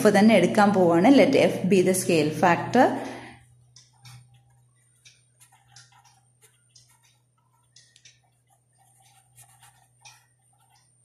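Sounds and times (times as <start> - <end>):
low steady hum: 0.0 - 11.0
pen scratching on paper: 4.0 - 11.0.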